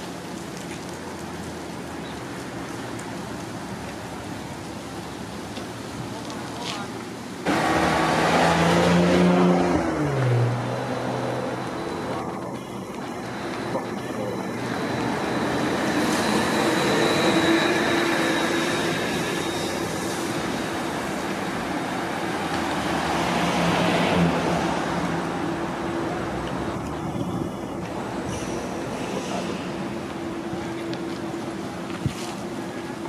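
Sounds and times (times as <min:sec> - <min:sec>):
traffic noise: 0:00.0 - 0:33.0
bus driving past: 0:07.4 - 0:33.0.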